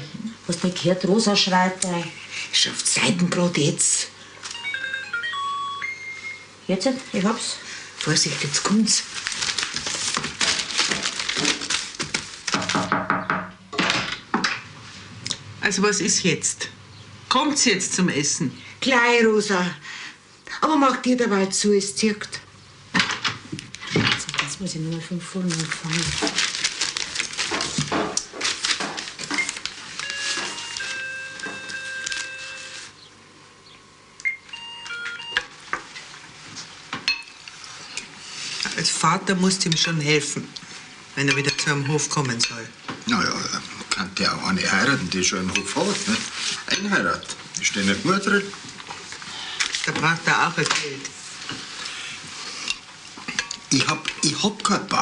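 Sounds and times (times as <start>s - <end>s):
paper rustling and shuffling: 8.0s - 12.9s, 23.8s - 33.0s, 45.4s - 46.7s, 47.5s - 52.0s.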